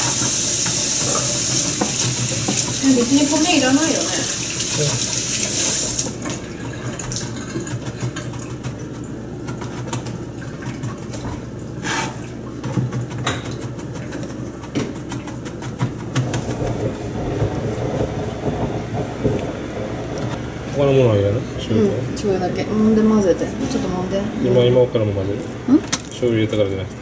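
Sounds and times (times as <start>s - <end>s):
knife chopping on plastic board: 12.6s - 16.6s.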